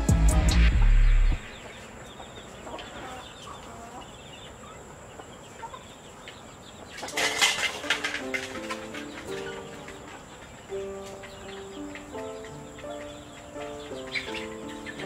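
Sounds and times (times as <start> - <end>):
chickens clucking: 1.5 - 15.0
faint bird chirps: 9.2 - 15.0.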